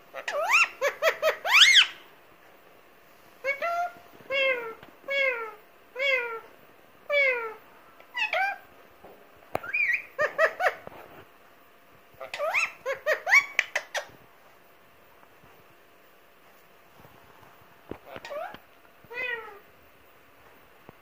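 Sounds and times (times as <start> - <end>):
parakeet calling: 0.1 - 2.0, 3.4 - 6.5, 7.1 - 8.7, 9.6 - 10.8, 12.2 - 14.2
parakeet chattering: 0.1 - 2.0, 9.6 - 10.8, 12.2 - 14.1.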